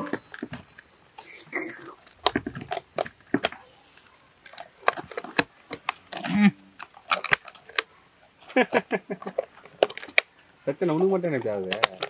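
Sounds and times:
low call: 0.0s - 4.3s
plastic lids clicking and knocking: 1.7s - 3.7s, 4.4s - 7.9s, 8.5s - 12.0s.

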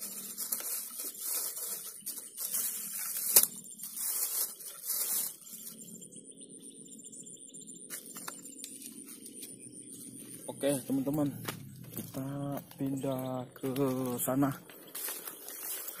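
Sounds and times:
outdoor background: 0.0s - 16.0s
clothing and gear rustling: 13.8s - 16.0s.

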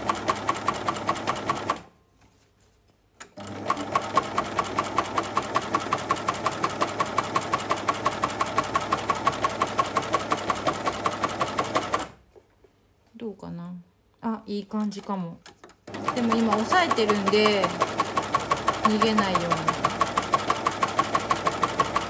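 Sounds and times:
sewing machine ticking: 0.0s - 1.9s, 3.4s - 12.2s, 15.8s - 22.0s.

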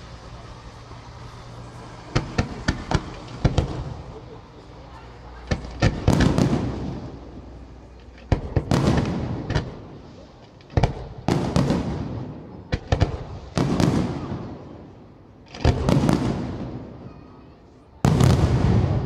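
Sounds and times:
firework shells bursting: 0.1s - 4.7s.

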